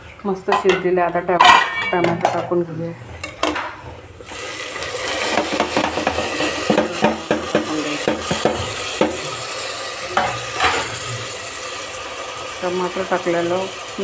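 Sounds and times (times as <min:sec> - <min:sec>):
food sizzling: 0:03.6 - 0:14.0.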